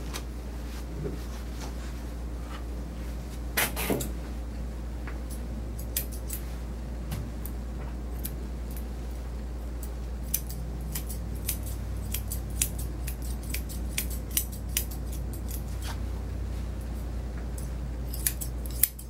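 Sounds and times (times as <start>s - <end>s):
grooming shears snipping: 5.3s - 6.5s, 9.8s - 16.0s, 17.6s - 19.0s.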